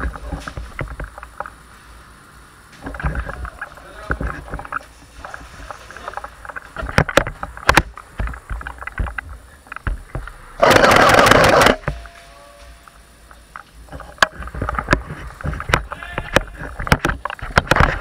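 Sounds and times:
airsoft gun firing full-auto: 10.6 - 11.8.

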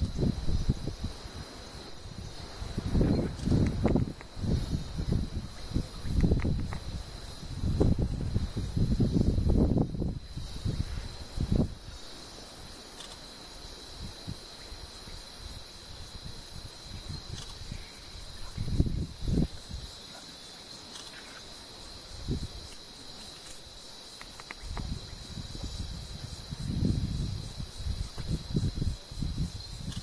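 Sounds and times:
insects buzzing: 0.0 - 30.0.

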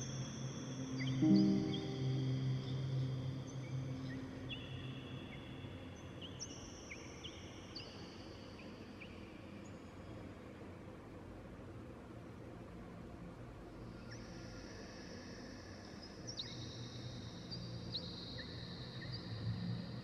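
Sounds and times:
low held synth pad: 0.0 - 9.0.

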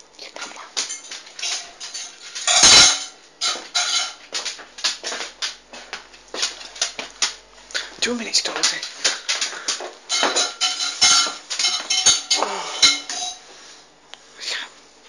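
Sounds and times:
dishes and cutlery clinking: 0.4 - 5.2, 8.6 - 13.5.

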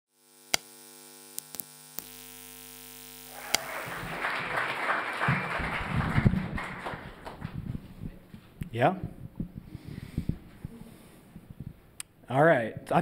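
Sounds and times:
electrical mains hum: 0.2 - 13.0
audience noise: 3.3 - 8.1
low thumps: 7.4 - 12.0.

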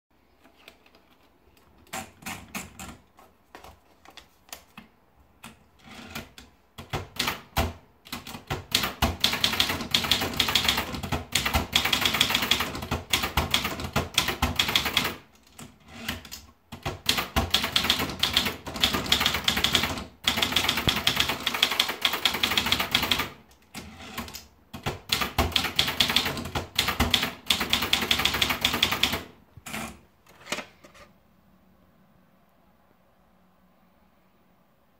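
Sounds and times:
typewriter typing: 5.4 - 30.0.

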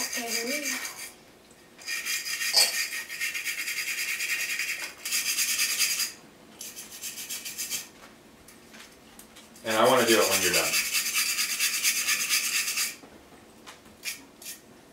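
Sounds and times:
wire brush scrubbing plastic: 0.0 - 1.1.

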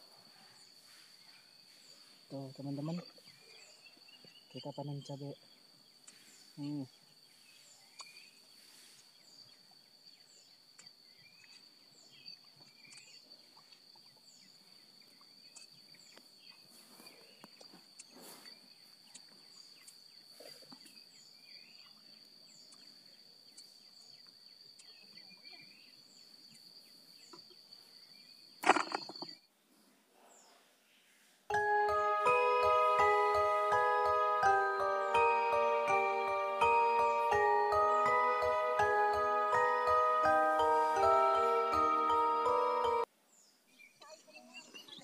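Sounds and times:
high-pitched insect drone: 0.0 - 3.8, 31.5 - 43.1.

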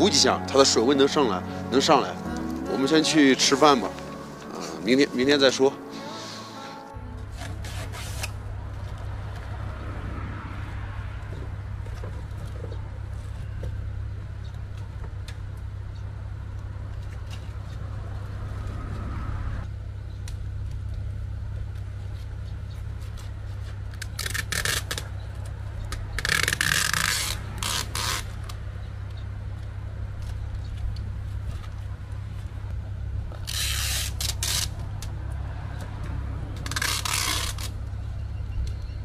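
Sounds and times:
adhesive tape pulled off roll: 7.3 - 8.4, 24.0 - 25.1, 26.2 - 28.6, 33.4 - 35.1, 36.6 - 37.8.

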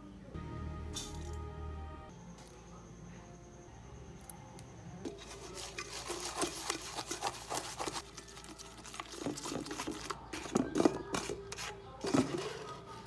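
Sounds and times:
utensil scraping metal bowl: 5.0 - 13.0.

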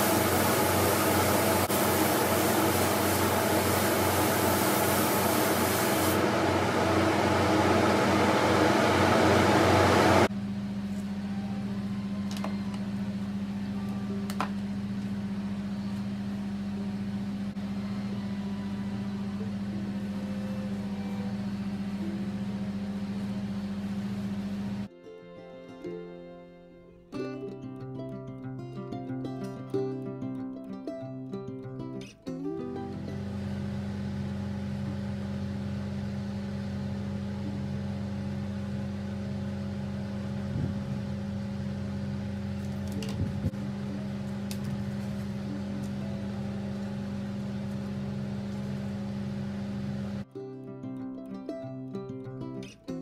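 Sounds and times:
low machine hum: 0.0 - 24.9, 32.8 - 50.3.

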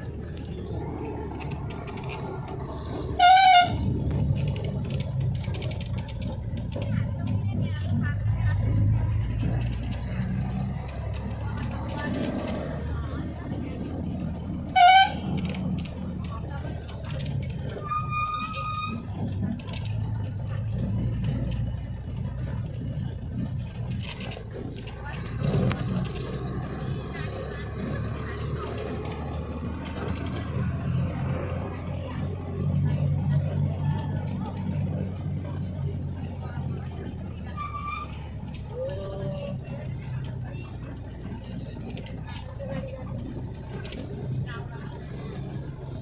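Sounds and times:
vehicle engine and road rumble: 0.0 - 46.0
car horn: 3.2 - 3.9, 14.7 - 15.4.

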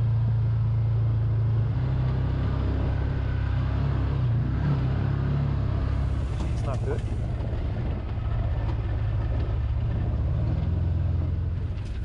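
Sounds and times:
utility vehicle engine running: 0.0 - 12.0.

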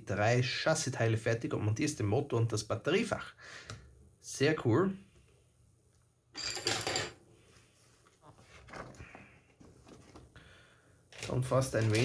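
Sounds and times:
soft handling sounds: 7.4 - 10.4, 11.1 - 12.0
paper rustling: 8.0 - 10.4, 11.1 - 12.0.

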